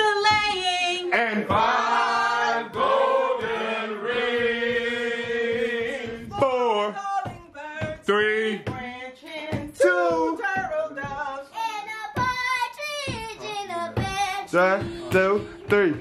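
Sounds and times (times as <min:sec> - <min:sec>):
group singing together: 0:00.0 - 0:12.5, 0:13.1 - 0:16.0
child singing: 0:08.7 - 0:16.0.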